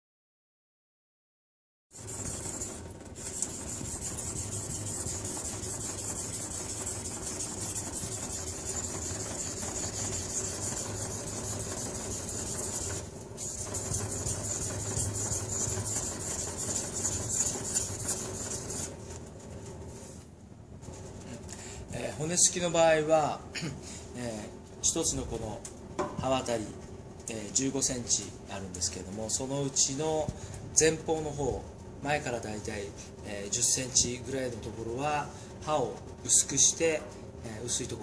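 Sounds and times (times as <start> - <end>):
knife scraping on whetstone: 2.0 - 18.9.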